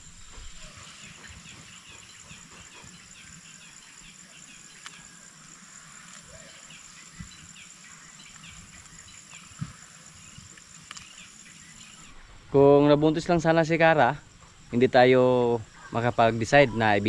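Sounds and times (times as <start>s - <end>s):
insects trilling: 0.0s - 17.0s
short insect chirps: 0.0s - 17.0s.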